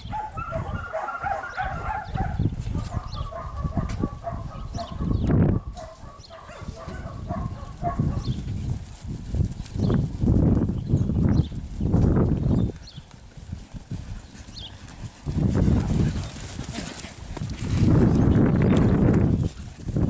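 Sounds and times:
dog yipping: 0.1s - 5.1s.

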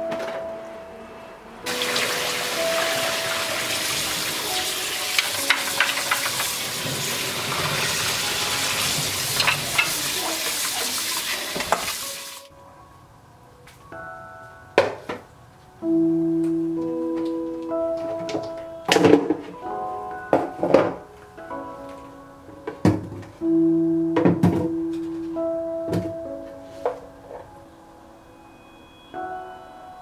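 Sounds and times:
tap water running into pot: 1.7s - 12.4s.

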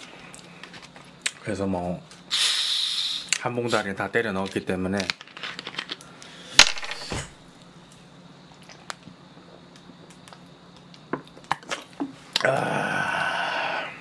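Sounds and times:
person exhaling ahh: 2.3s - 3.3s, 12.4s - 14.0s.

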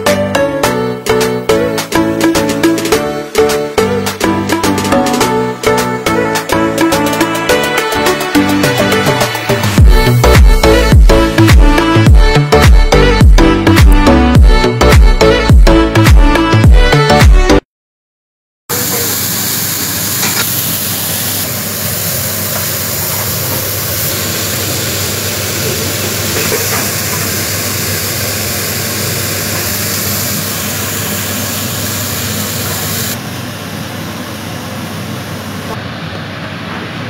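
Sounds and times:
vegetables sizzling in a pan: 18.7s - 33.2s.

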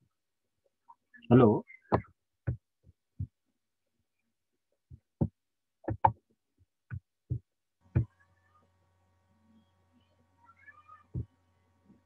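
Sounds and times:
soft thuds: 4.9s - 6.2s
faint steady hum: 6.9s - 12.0s.

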